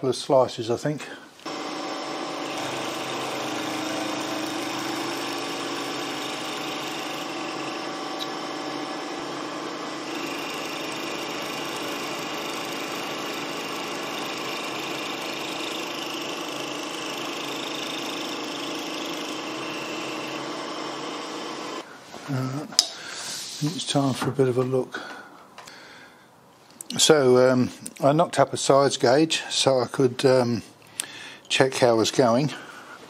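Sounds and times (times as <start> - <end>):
high cutting tone: 1.4 - 21.8
milling machine whine: 1.4 - 21.9.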